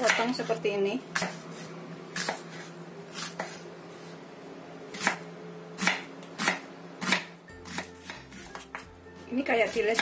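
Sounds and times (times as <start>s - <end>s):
knife chopping on wooden board: 1.1s - 3.6s, 5.8s - 8.9s, 9.7s - 10.0s.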